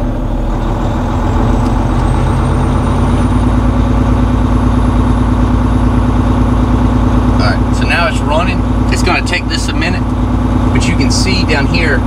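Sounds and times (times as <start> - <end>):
diesel truck engine revving: 0.0 - 12.0.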